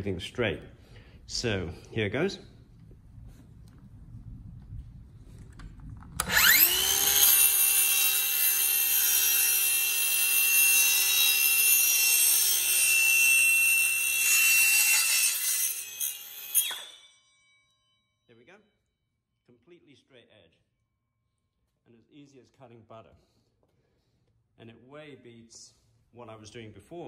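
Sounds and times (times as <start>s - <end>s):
circular saw cutting wood: 6.2s - 17.8s.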